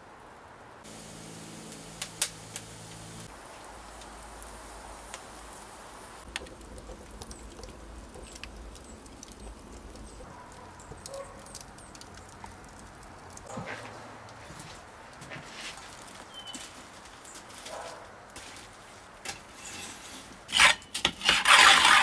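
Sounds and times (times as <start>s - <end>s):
fire hissing: 0.8s - 10.2s, 19.2s - 20.7s
wood fire crackling and popping: 0.8s - 22.0s.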